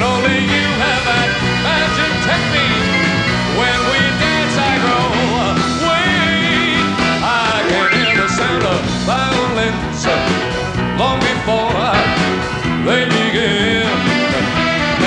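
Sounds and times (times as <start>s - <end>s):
live band playing cha-cha: 7.8s - 8.8s.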